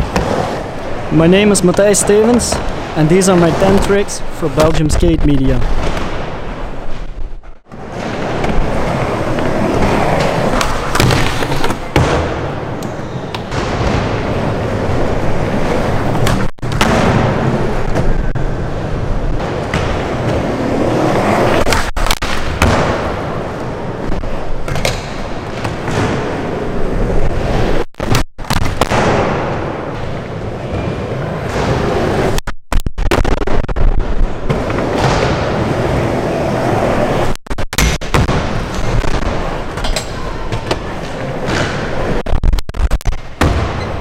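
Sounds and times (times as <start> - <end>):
skateboard wheels rolling on wood: 5.6 - 27.8.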